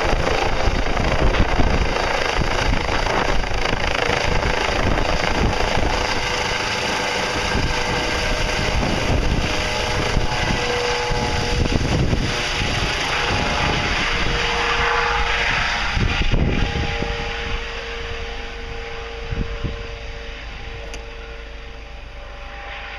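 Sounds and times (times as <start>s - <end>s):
helicopter flying overhead: 0.0s - 22.9s
helicopter rotor beat and whine: 0.0s - 22.9s.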